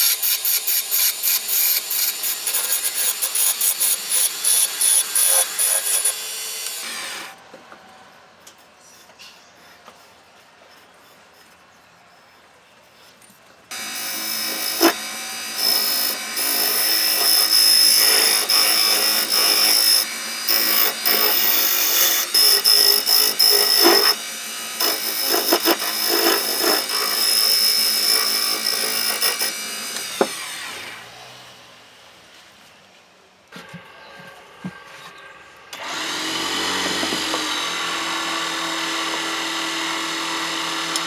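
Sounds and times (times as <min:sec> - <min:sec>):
chisel scraping spinning wood: 0:09.6 - 0:30.4
wood lathe whine: 0:13.7 - 0:31.2, 0:35.7 - 0:41.0.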